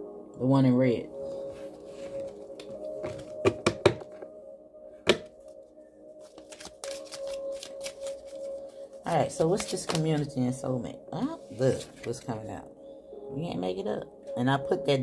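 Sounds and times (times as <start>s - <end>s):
soft background music: 0.0s - 15.0s
deck of cards shuffled: 6.2s - 8.7s, 9.4s - 10.3s.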